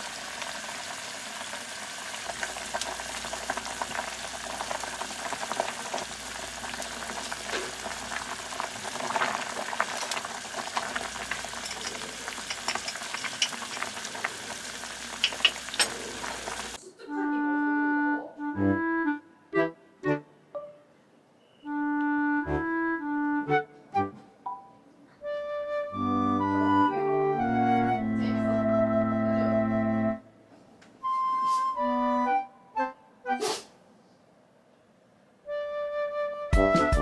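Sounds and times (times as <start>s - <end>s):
soup boiling and bubbling: 0.0s - 16.8s
ladle stirring soup: 10.8s - 14.5s
music: 17.1s - 30.4s, 31.0s - 33.6s, 35.4s - 37.0s.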